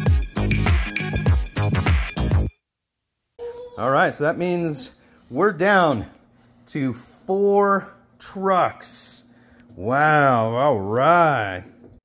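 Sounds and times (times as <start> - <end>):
electronic dance music: 0.0 - 2.5.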